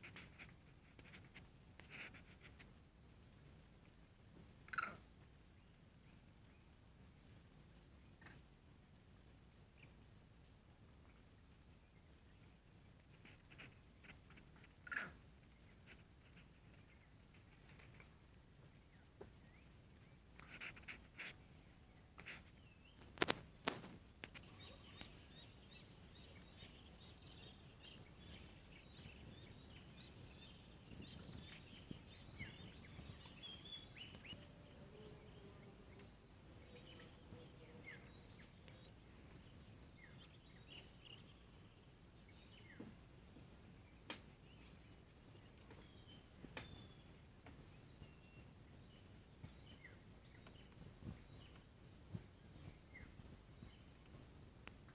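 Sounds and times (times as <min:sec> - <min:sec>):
steady high hiss: 0:08.3 - 0:54.9
small birds chirping and whistling: 0:24.4 - 0:34.8, 0:36.6 - 0:41.5, 0:44.4 - 0:51.6.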